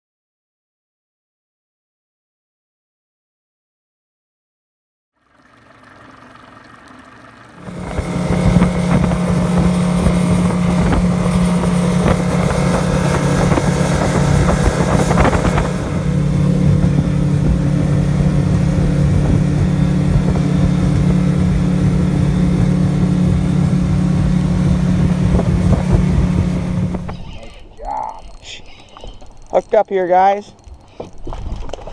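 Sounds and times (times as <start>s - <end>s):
motorboat engine hum: 5.1s - 31.9s
water rushing: 5.2s - 28.6s
rushing wind: 7.6s - 27.5s.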